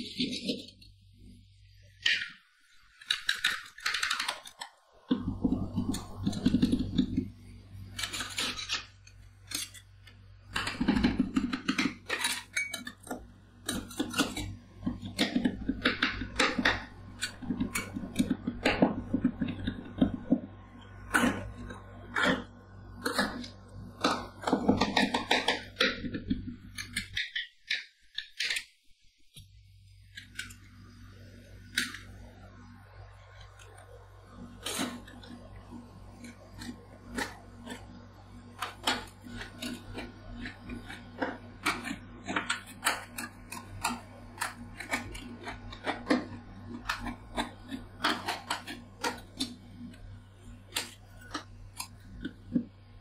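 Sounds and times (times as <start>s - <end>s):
steady low hum: 0.0s - 27.4s, 28.9s - 53.0s
metal spatulas tapping and scraping: 10.5s - 14.5s.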